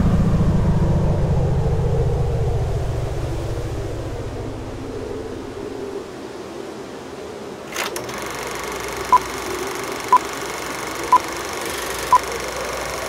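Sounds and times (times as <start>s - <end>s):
steady mechanical whir: 7.7s - 13.0s
short electronic beeps: 11.1s - 12.3s.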